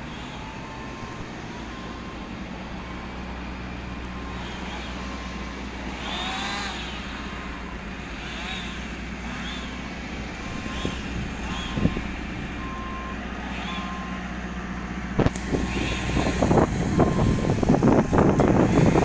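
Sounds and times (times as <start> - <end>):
diesel engine running: 0.0 - 19.0
reversing alarm beeps: 0.2 - 5.4, 9.3 - 14.2, 15.7 - 17.6.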